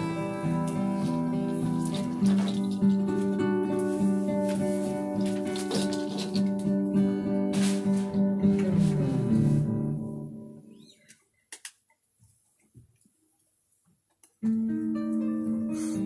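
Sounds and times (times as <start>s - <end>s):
guitar playing: 0.0s - 11.0s, 14.4s - 16.0s.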